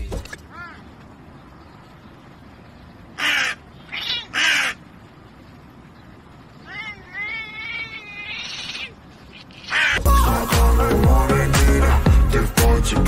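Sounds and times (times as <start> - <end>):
crow cawing: 3.2 - 4.9, 9.6 - 10.0.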